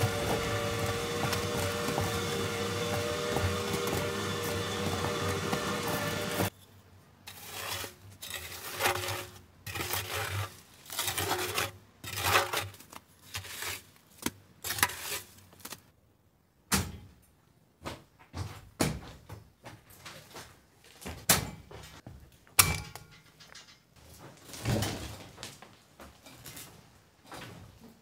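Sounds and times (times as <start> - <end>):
sharp knocks and clanks: 0.0 - 6.5.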